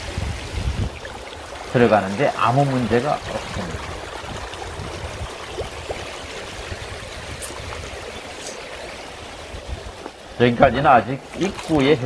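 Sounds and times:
stream flowing over rocks: 0:00.0 - 0:12.0.

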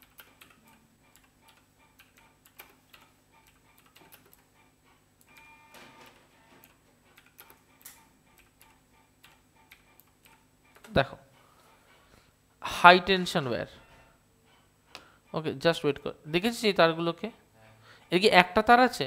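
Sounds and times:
keyboard typing clicks: 0:00.0 - 0:04.5, 0:05.2 - 0:11.0.

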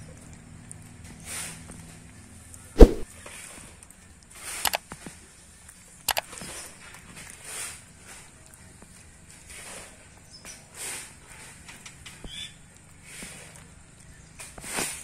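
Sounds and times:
sharp knock: 0:02.8 - 0:03.0.

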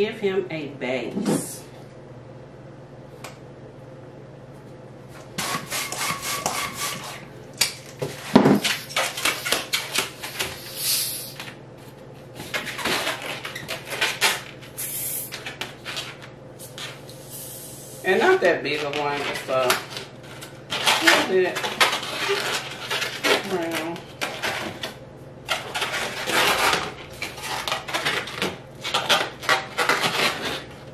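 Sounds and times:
hand pump inflating balloon: 0:05.4 - 0:07.2, 0:10.4 - 0:11.4, 0:14.8 - 0:15.4.

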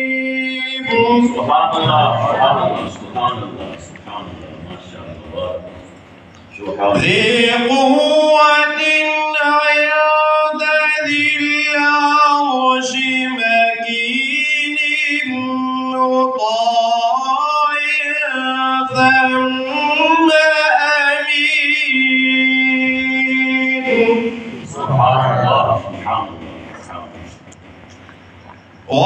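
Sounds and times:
man reciting melodically: 0:00.0 - 0:27.4.

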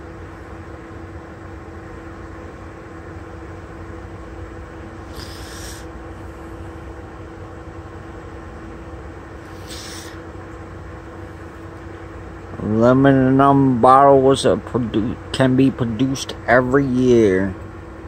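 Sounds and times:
mechanical hum with steady tone: 0:00.0 - 0:18.0
short high hiss: 0:05.1 - 0:05.9, 0:09.4 - 0:10.2.

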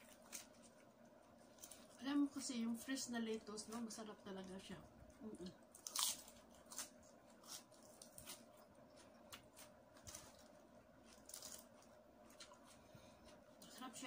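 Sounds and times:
person chewing food: 0:05.0 - 0:13.6.

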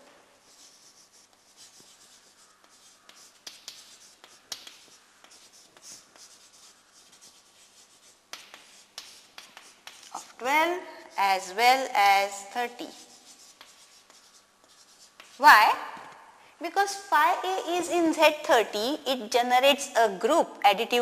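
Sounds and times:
chalk scratching on chalkboard: 0:00.4 - 0:15.4
chalk tapping on chalkboard: 0:00.5 - 0:10.4, 0:12.8 - 0:15.4.

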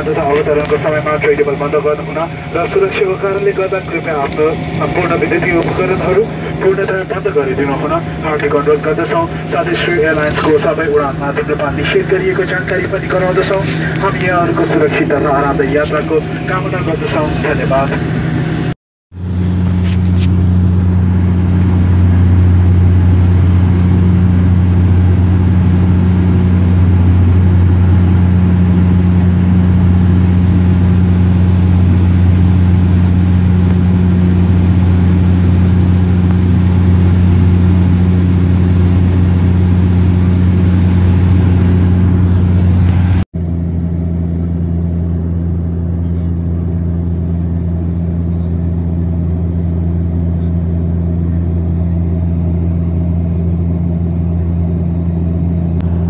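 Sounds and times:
airplane cabin propeller drone: 0:00.0 - 0:56.0.

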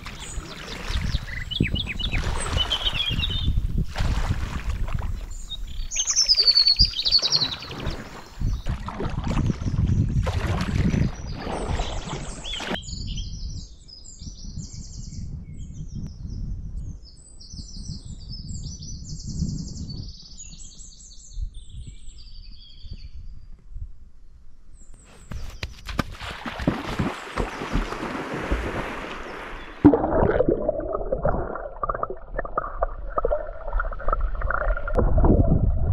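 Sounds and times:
paddle splashing in water: 0:00.0 - 0:01.4, 0:03.9 - 0:05.4, 0:07.1 - 0:12.8, 0:25.9 - 0:35.5
songbirds singing: 0:00.0 - 0:03.8, 0:05.1 - 0:23.6
person running through water: 0:03.9 - 0:05.2, 0:08.7 - 0:12.8, 0:25.8 - 0:30.4
low rumble: 0:30.0 - 0:35.9.

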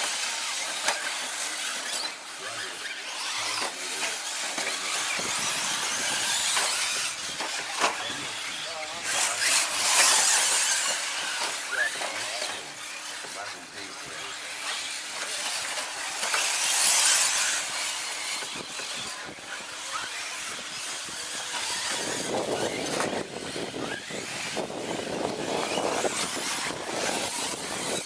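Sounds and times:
radio-controlled trucks racing: 0:00.0 - 0:28.0.

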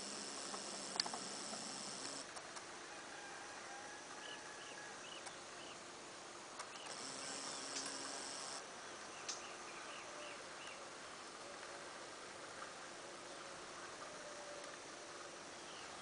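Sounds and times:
insects droning high-pitched: 0:00.0 - 0:02.3, 0:03.0 - 0:10.7.

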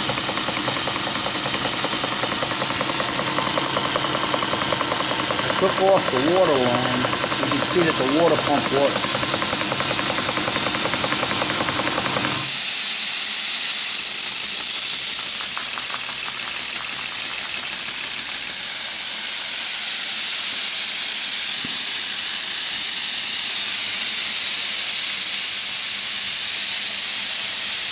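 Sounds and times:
steam pump clattering: 0:00.0 - 0:12.8, 0:13.9 - 0:20.8.

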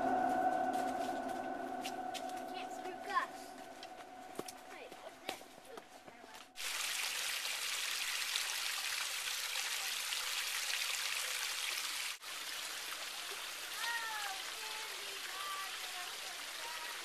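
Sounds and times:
stream splashing over rocks: 0:06.6 - 0:17.0.

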